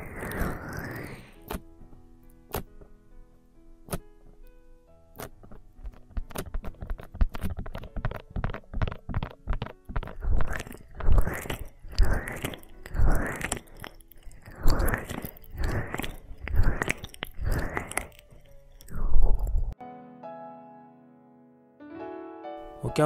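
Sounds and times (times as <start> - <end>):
hands rubbing microphone: 5.2 - 19.7.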